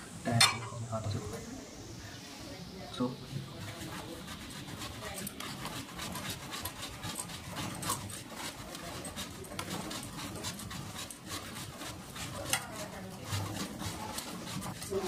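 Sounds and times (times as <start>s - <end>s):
scrubbing a drive chain: 3.6s - 15.0s.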